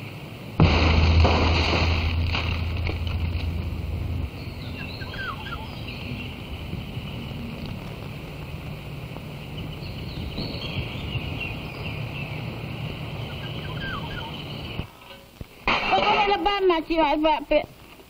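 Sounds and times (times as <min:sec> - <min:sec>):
steady low rumble: 0:00.4 - 0:14.9
birds calling: 0:02.7 - 0:14.9.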